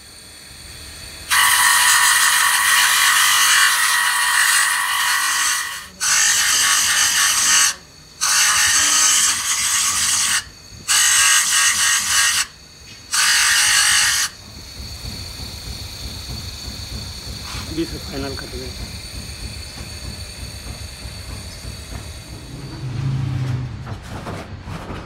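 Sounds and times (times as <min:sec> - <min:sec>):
metal gear grinding on disc: 0:01.3 - 0:12.5.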